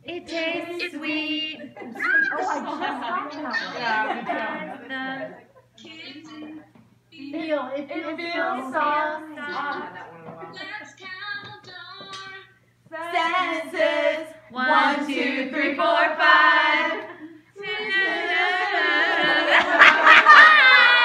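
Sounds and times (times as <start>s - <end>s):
women singing together: 12.9s - 21.0s.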